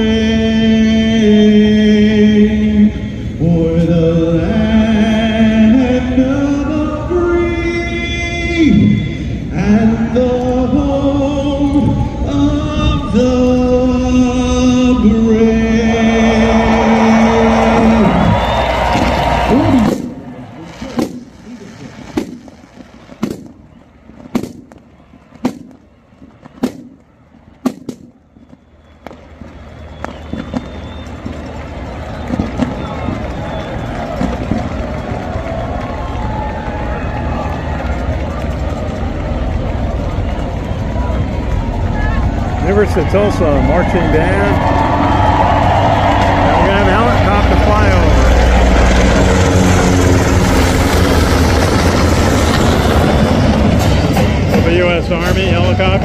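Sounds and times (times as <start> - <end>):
marching band drum hits: 21.0 - 21.4, 22.1 - 31.6, 32.2 - 35.2, 53.6 - 56.0.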